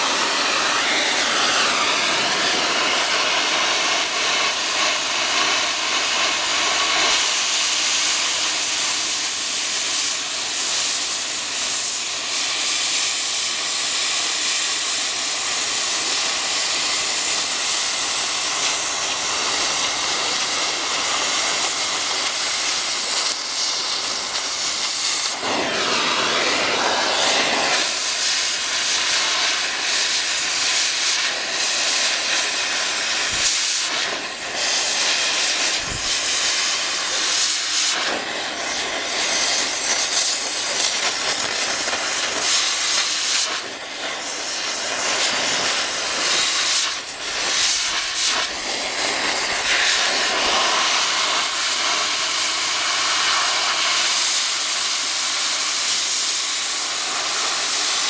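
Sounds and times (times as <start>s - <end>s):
cutting torch hissing: 0.0s - 58.0s.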